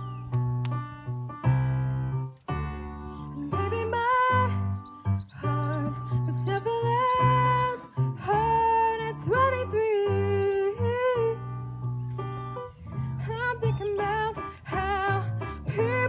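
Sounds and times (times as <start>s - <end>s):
keyboard playing held chords: 0.0s - 16.0s
woman singing into a microphone: 3.2s - 4.7s, 5.3s - 11.5s, 13.2s - 16.0s.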